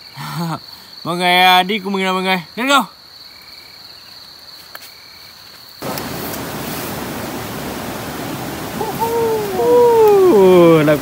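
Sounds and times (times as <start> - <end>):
insect trill: 0.0 - 11.0
stream water rushing: 5.8 - 11.0.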